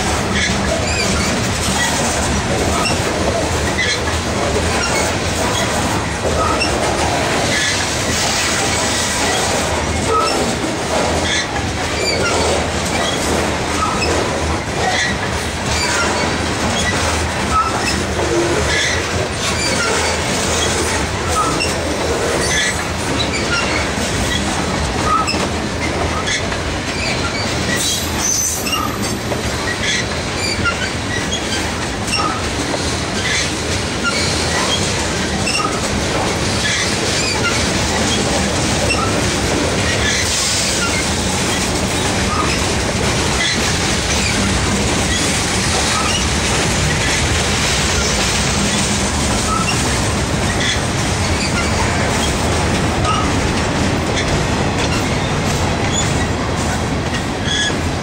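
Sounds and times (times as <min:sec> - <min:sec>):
train wheels clattering on rails: 0:00.0 - 0:58.0
high wheel squeals: 0:15.8 - 0:18.0, 0:27.0 - 0:29.1, 0:29.7 - 0:32.4, 0:35.5 - 0:35.8, 0:40.0 - 0:41.1, 0:49.5 - 0:49.8, 0:57.4 - 0:57.7.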